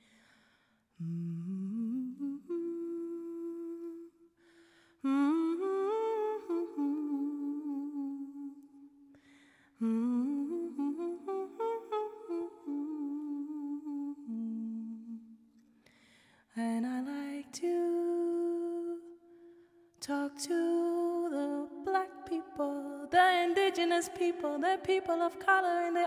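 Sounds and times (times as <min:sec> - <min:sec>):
woman humming a melody: 0:01.0 - 0:04.1, 0:05.1 - 0:08.7, 0:09.8 - 0:15.2.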